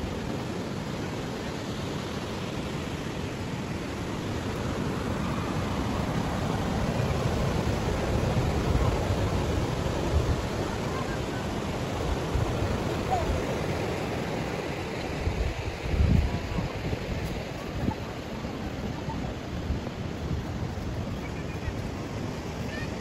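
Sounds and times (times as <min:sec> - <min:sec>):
surf breaking on a beach: 0:00.0 - 0:23.0
wind gusting on microphone: 0:00.0 - 0:23.0.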